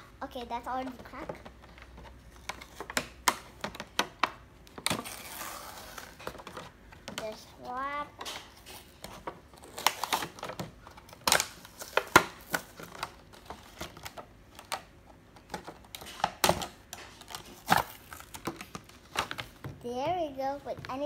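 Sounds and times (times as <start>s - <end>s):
plastic packaging crackling: 4.7s - 7.4s, 8.2s - 19.6s.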